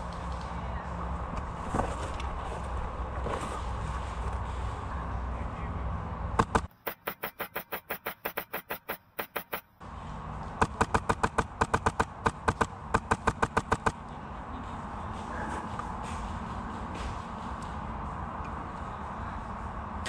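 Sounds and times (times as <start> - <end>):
airsoft gun firing rapid shots: 6.4 - 9.7, 10.6 - 14.0.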